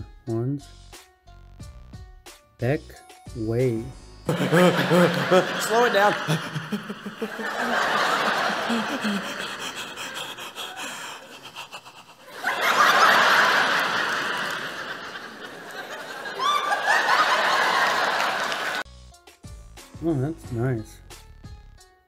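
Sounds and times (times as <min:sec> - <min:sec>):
audience laughing: 0:04.3 - 0:18.8.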